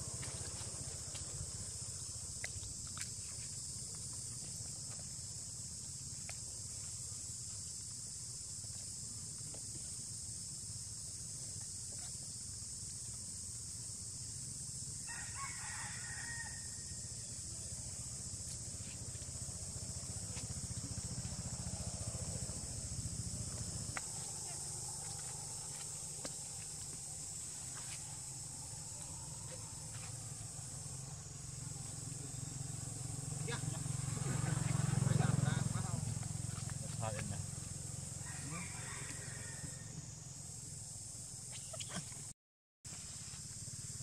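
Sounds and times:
insects droning: 0:00.0 - 0:44.0
rooster crowing: 0:15.0 - 0:17.2, 0:38.1 - 0:40.1.

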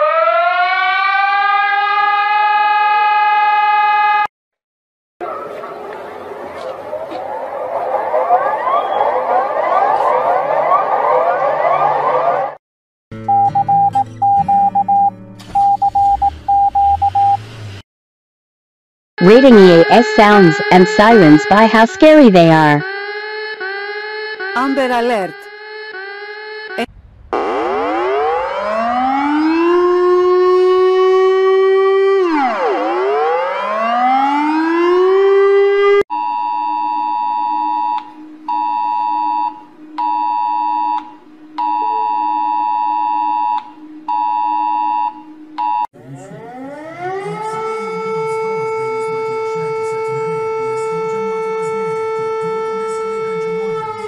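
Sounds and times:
civil defense siren winding up: 0:00.0 - 0:04.3, 0:05.5 - 0:12.6, 0:15.0 - 0:17.8, 0:19.2 - 0:54.0
wailing siren: 0:00.0 - 0:04.3, 0:05.2 - 0:12.6, 0:19.2 - 0:54.0
two-tone electronic alert beep: 0:13.3 - 0:17.4, 0:41.6 - 0:46.6.

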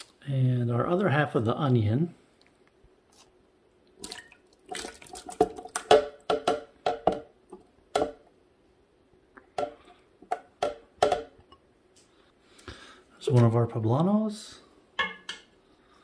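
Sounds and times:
vegetables plopping into liquid: 0:04.0 - 0:06.6.

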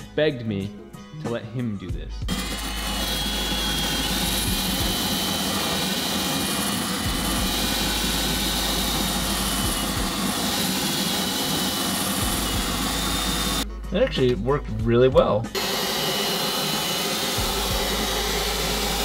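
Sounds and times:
drill wire wheel scrubbing metal: 0:02.3 - 0:13.6, 0:15.6 - 0:19.0.

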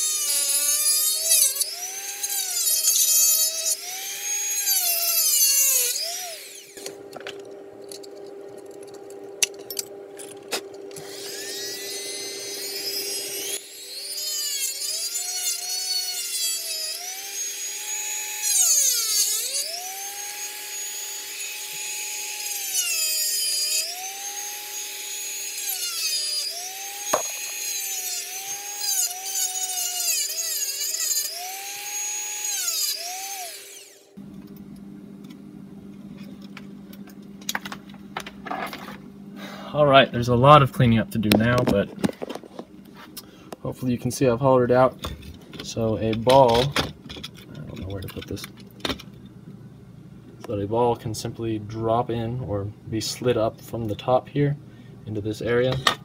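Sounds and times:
rotary tool grinding plastic: 0:00.0 - 0:34.1.

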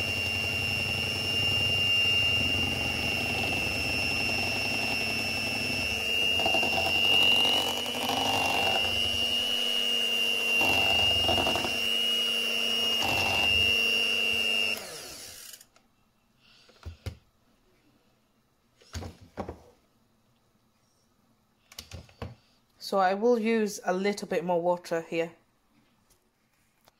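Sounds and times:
electric hand mixer whining: 0:00.0 - 0:15.6.

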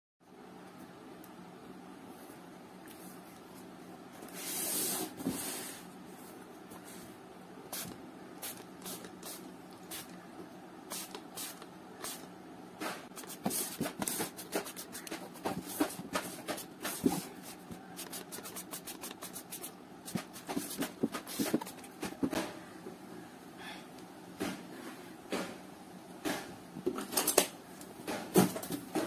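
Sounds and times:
hands rubbing cardboard box: 0:13.2 - 0:21.8.

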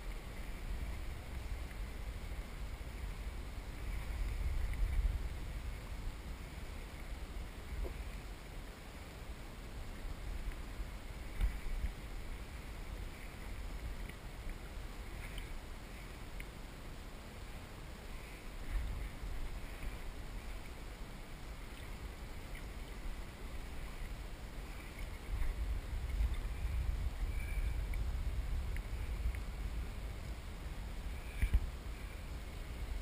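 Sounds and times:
water sloshing around kayak: 0:00.0 - 0:33.0
wind rumble on microphone: 0:00.0 - 0:33.0
faint clicks: 0:13.2 - 0:16.6, 0:28.7 - 0:29.5, 0:31.3 - 0:31.7.

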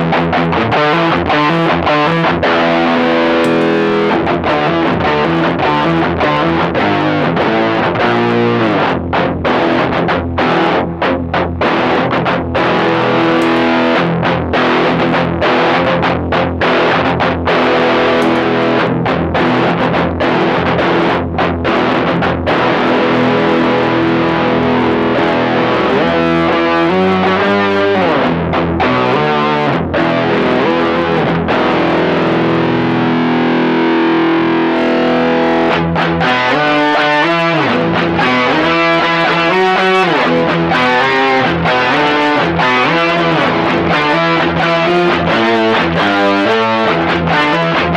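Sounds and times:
distorted electric guitar: 0:00.0 - 0:47.9.

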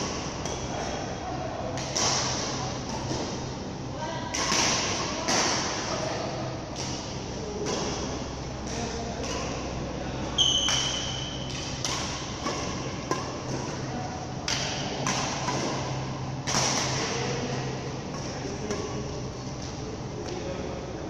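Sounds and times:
ventilation hum: 0:00.0 - 0:21.0
high squeak: 0:10.4 - 0:11.3
rackets hitting shuttlecocks: 0:10.6 - 0:13.8, 0:14.4 - 0:19.0.

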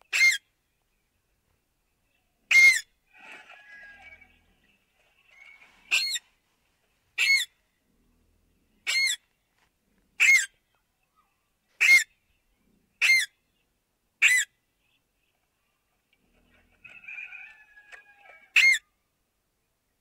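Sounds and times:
parakeet calls: 0:02.5 - 0:04.6, 0:05.2 - 0:06.2, 0:07.2 - 0:07.5, 0:08.8 - 0:09.2, 0:10.2 - 0:10.5, 0:11.8 - 0:12.1, 0:17.3 - 0:18.9.

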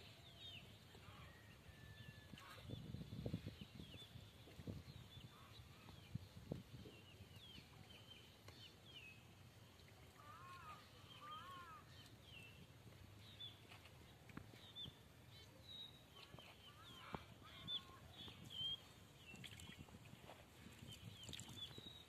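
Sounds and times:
lower arching bird calls: 0:10.2 - 0:12.0.

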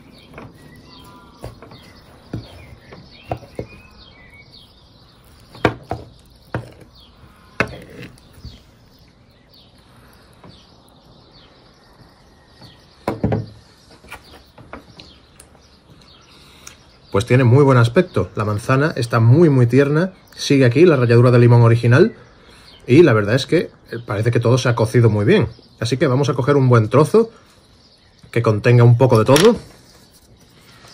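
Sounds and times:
small birds chirping: 0:00.0 - 0:30.9
knife scraping against clay bowl: 0:05.2 - 0:08.8.

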